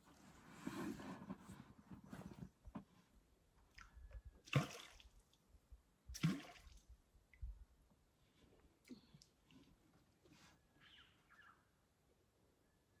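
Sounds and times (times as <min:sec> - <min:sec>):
water splashing and dripping: 0:04.5 - 0:05.2, 0:06.1 - 0:06.9.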